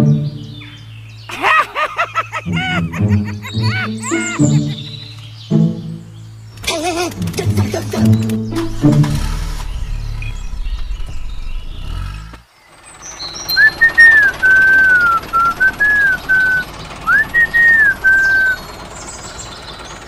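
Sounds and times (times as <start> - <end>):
low rumble: 7.2 - 12.5
person whistling a tune: 13.5 - 18.6.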